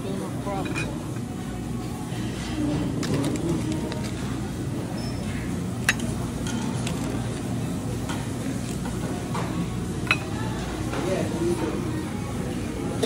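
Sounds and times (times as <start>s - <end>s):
murmur of diners: 0.0s - 13.0s
clinks of dishes and cutlery: 0.5s - 1.0s, 9.4s - 11.1s.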